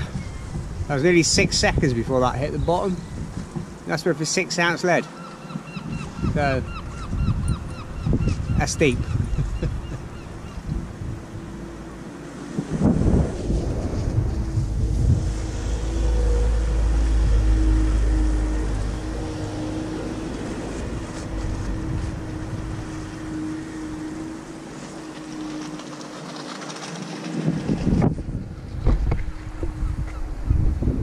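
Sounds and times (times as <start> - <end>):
wind buffeting microphone: 0.0 - 3.9, 5.5 - 31.0
steady droning hum: 9.6 - 26.0.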